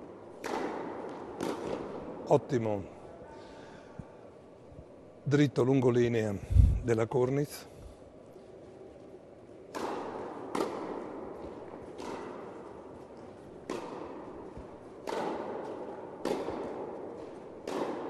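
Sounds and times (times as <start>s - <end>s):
racket striking tennis ball: 0.2s - 2.2s, 9.7s - 18.0s
tennis ball bouncing: 0.2s - 2.2s, 9.7s - 18.0s.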